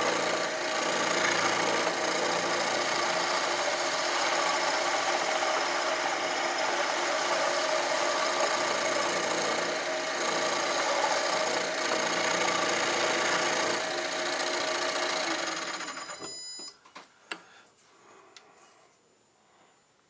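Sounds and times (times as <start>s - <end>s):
tool cutting metal: 0.0s - 15.9s
lathe machine whine: 0.0s - 16.2s.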